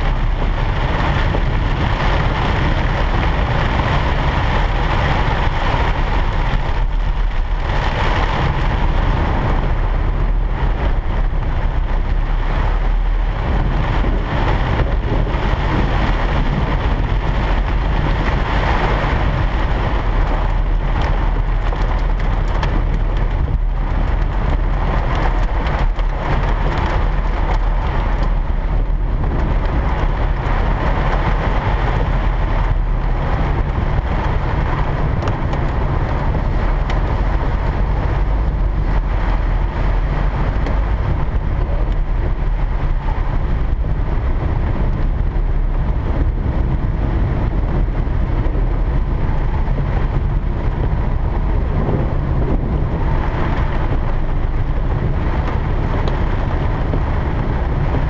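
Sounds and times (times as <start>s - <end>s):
car rumbling on wet road: 0.0s - 58.0s
rain falling on car: 0.0s - 58.0s.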